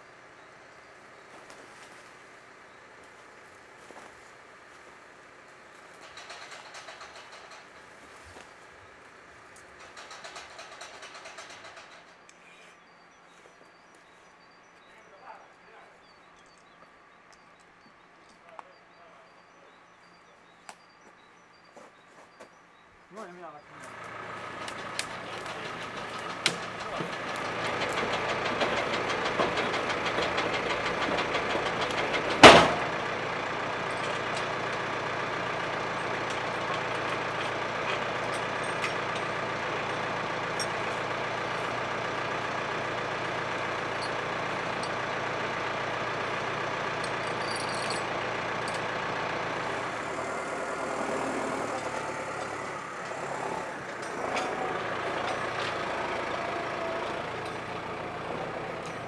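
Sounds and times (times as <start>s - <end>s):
tractor engine running: 0.0s - 12.3s, 23.7s - 59.0s
winch dragging a log: 23.8s - 59.0s.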